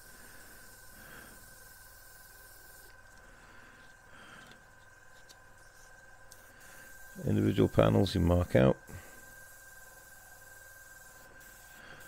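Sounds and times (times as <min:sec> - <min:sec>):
airbrush spraying hiss: 0:00.0 - 0:03.0, 0:05.6 - 0:12.0.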